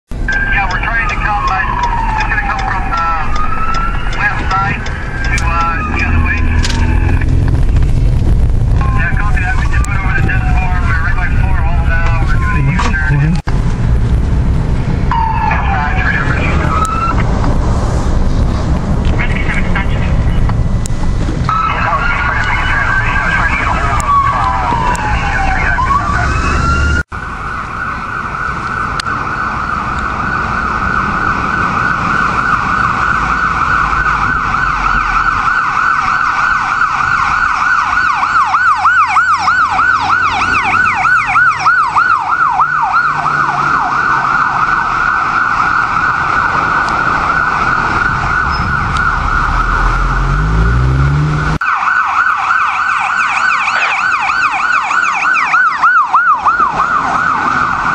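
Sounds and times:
ambulance siren wailing: 0.2 - 13.5, 15.0 - 17.6, 21.4 - 57.9
vehicle engine revving: 1.6 - 21.7, 39.0 - 51.6.

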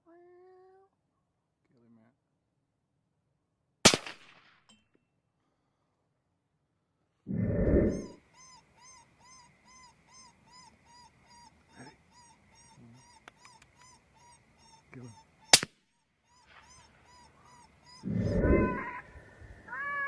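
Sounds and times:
loud gunshot: 3.8 - 4.5
rhythmic yipping distress call: 7.9 - 19.1.

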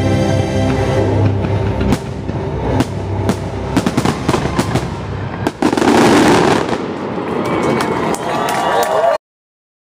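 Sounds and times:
fireworks bursting: 1.8 - 8.2.

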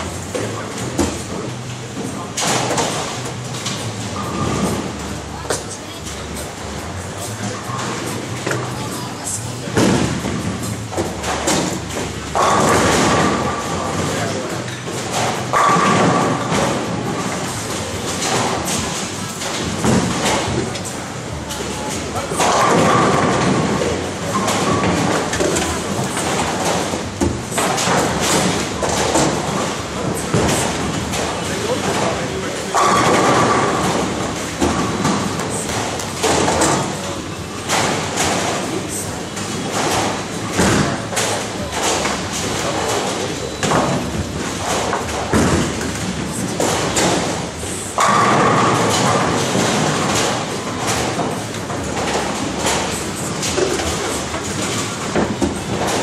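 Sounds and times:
bowling balls rolling on lanes: 0.0 - 56.0.

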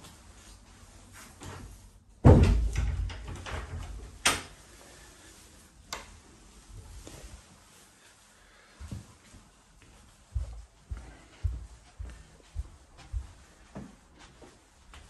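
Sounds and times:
heavy thump with rattle: 2.2 - 3.2.

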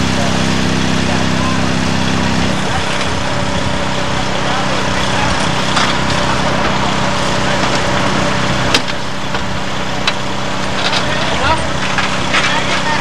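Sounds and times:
petrol power unit running: 0.0 - 13.0.

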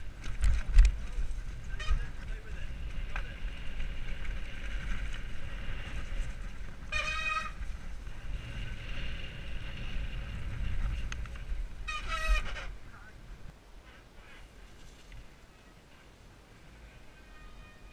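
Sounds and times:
bike tyres on dirt: 0.0 - 17.9
wind rumble on microphone: 0.0 - 17.9
high horn-like squeals: 6.9 - 7.6, 11.8 - 12.7, 17.1 - 17.9.

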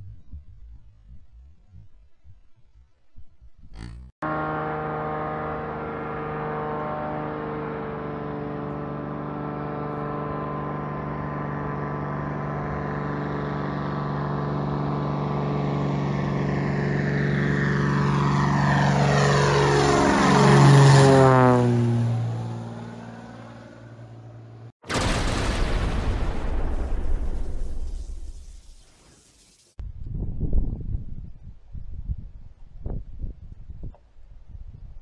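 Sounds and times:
propeller plane engine drone: 3.6 - 24.8.

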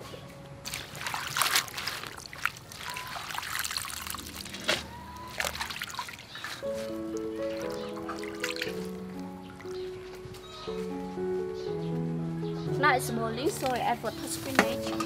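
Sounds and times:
background music: 0.0 - 2.2, 6.6 - 15.0
hands splashing water in basin: 0.6 - 6.9, 7.5 - 9.0.

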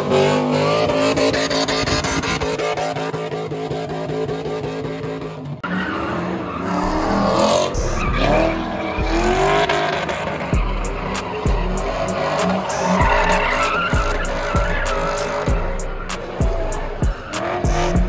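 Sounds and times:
car engine at high revs: 0.0 - 18.0
car engine revving up and down: 0.0 - 18.0
tyres squealing: 5.6 - 18.0.

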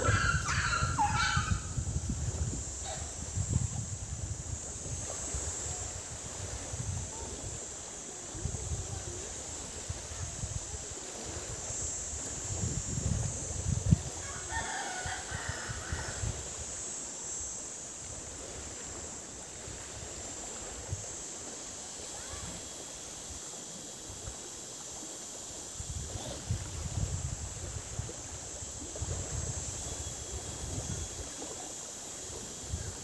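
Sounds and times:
rooster crowing: 14.2 - 16.2.

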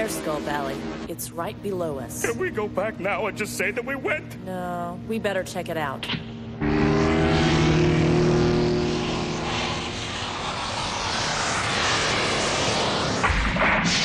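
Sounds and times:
propeller aircraft engine hum: 0.0 - 13.7
steady rushing noise: 6.2 - 14.0.

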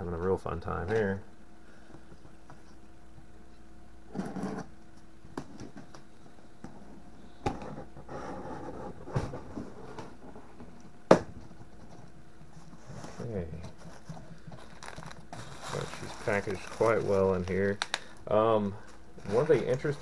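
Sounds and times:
faint steady hum: 0.0 - 20.0
cardboard scraping and rustling: 11.7 - 17.8, 19.2 - 20.0.

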